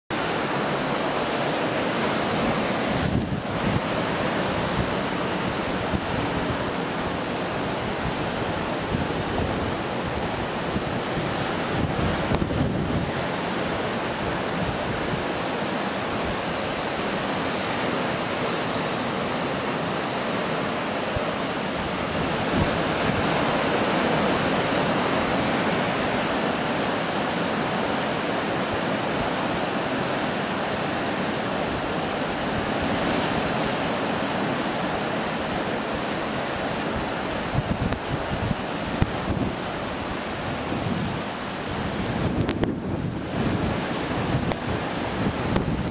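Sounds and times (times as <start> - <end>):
waves breaking on rocky shore: 0.1 - 45.9
wind on microphone: 0.1 - 45.9.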